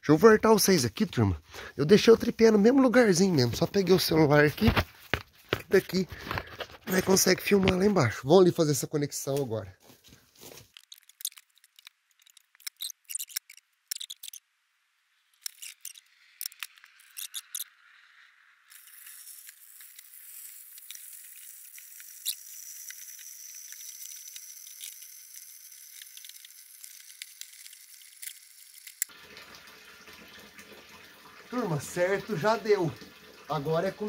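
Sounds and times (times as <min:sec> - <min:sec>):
running water hiss: 0:16.0 - 0:34.0.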